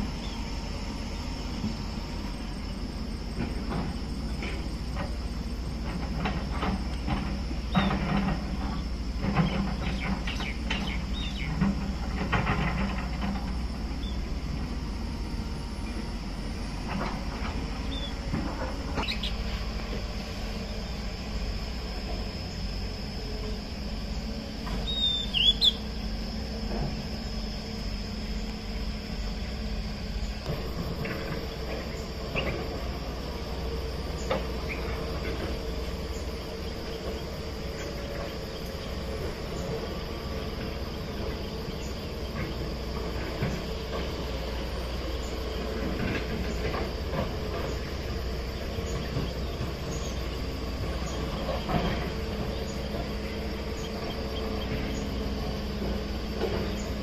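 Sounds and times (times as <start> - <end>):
distant excavator engine rumble: 0.0 - 57.0
insect drone: 0.0 - 57.0
bird chirp: 9.3 - 11.7, 17.8 - 18.2, 19.0 - 19.4, 24.1 - 26.0, 47.5 - 55.6, 56.4 - 57.0.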